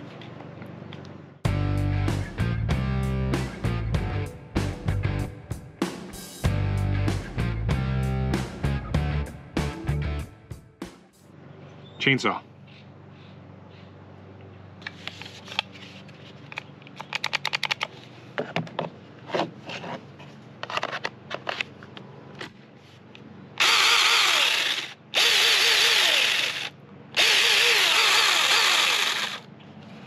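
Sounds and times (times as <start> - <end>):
clicks and rattles: 16.5 - 18.0
electric chainsaw whining: 23.6 - 29.5.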